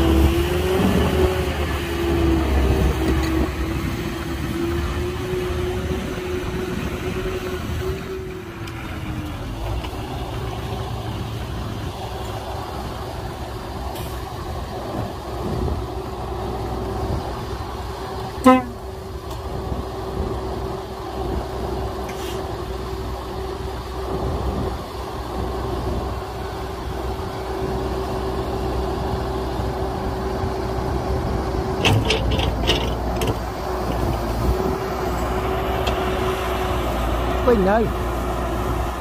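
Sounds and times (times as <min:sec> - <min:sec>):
diesel machinery rumbling and whining: 0:00.0 - 0:39.0
vehicle horn toot: 0:18.4 - 0:18.8.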